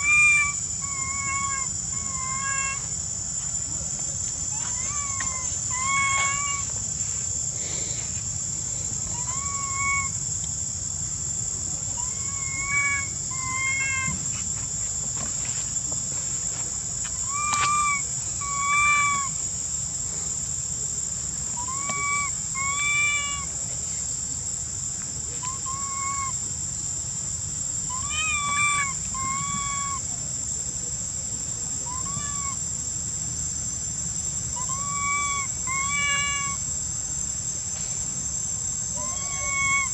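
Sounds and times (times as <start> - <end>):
baby monkey coo calls: 0.0 - 3.0, 4.4 - 6.8, 8.9 - 10.2, 11.9 - 14.2, 17.2 - 19.4, 21.5 - 23.5, 25.4 - 26.4, 27.9 - 30.2, 31.8 - 32.6, 34.5 - 36.7, 38.9 - 39.9
high insect drone: 0.0 - 39.9.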